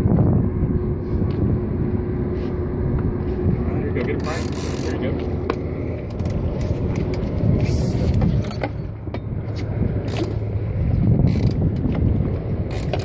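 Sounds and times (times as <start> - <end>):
wind noise on microphone: 0.0 - 3.9, 6.1 - 13.0
boat engine rumbling: 0.0 - 13.0
gear clicking on deck: 11.2 - 13.0.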